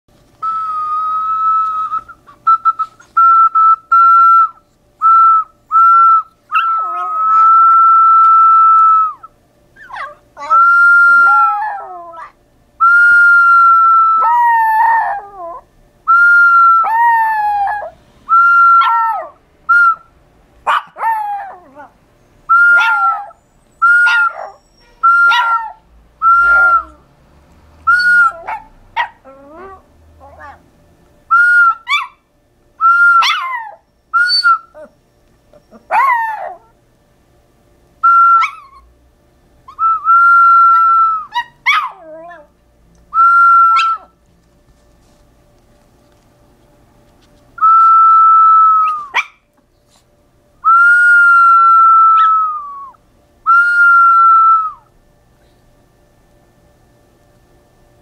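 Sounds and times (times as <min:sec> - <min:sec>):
high whistle: 0:00.4 - 0:06.3, 0:22.5 - 0:25.6, 0:26.2 - 0:27.0, 0:27.9 - 0:28.4, 0:31.3 - 0:31.9, 0:32.8 - 0:34.7, 0:38.0 - 0:38.8, 0:43.2 - 0:44.0, 0:47.6 - 0:49.1, 0:50.6 - 0:54.9
small dog howling: 0:06.5 - 0:12.4, 0:13.4 - 0:15.7, 0:16.7 - 0:19.4, 0:20.7 - 0:27.0, 0:28.0 - 0:30.6, 0:32.9 - 0:35.0, 0:35.6 - 0:36.8, 0:38.2 - 0:38.8, 0:39.7 - 0:42.5, 0:43.3 - 0:44.1, 0:47.9 - 0:49.4, 0:51.0 - 0:53.0.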